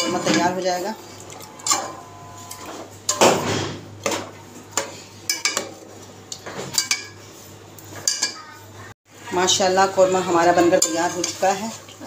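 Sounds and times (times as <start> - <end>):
fork scraping metal pot: 1.2 - 3.2, 10.2 - 12.0.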